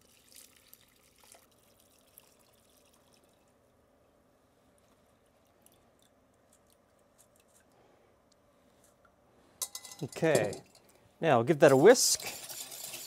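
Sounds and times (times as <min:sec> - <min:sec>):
liquid trickling into metal pot: 0:00.0 - 0:03.6, 0:11.9 - 0:13.0.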